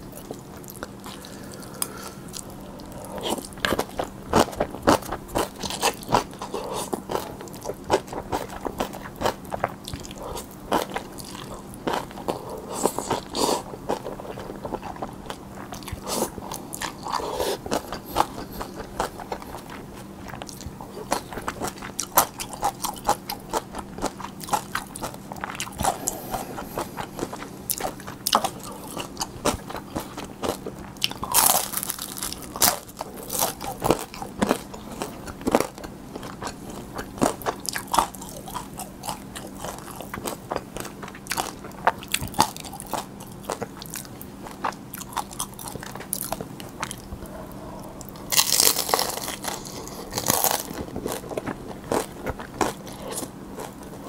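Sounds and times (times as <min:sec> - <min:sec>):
wet chewing: 0:00.2 - 0:54.0
crisp crunching: 0:24.5 - 0:40.0, 0:48.3 - 0:53.8.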